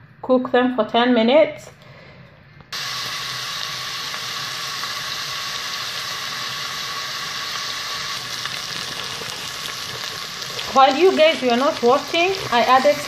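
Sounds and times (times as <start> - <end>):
onions sizzling in hot oil: 2.8 - 13.0.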